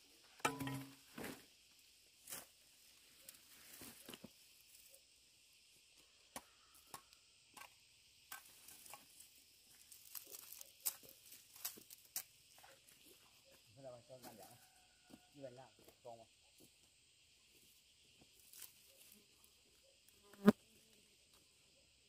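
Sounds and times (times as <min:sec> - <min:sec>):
faint high insect drone: 0:00.0 - 0:22.0.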